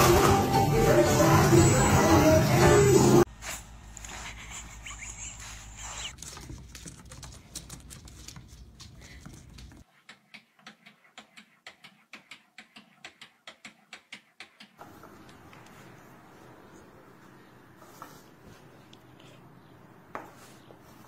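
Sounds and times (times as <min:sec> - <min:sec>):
cat paws scrabbling on wood: 0:05.9 - 0:09.8.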